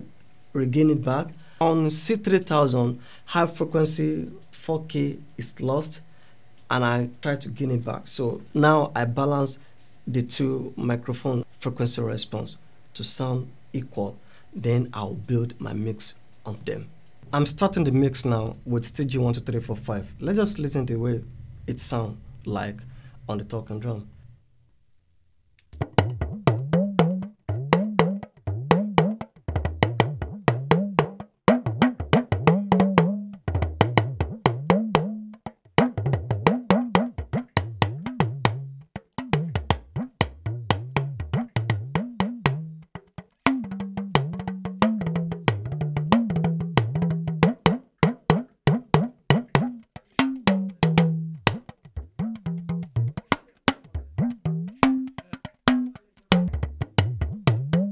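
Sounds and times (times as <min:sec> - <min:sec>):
talking drum playing: 0:17.2 - 0:24.0, 0:25.7 - 0:57.9.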